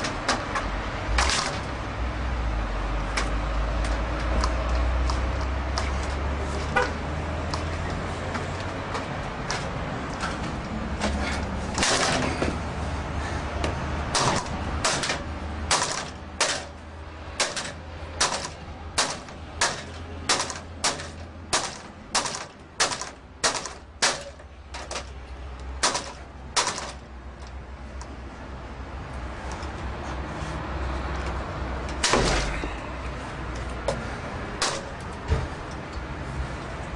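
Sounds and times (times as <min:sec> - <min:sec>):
pry bar clanking on metal gate: 0:14.1 - 0:16.8, 0:17.4 - 0:25.1.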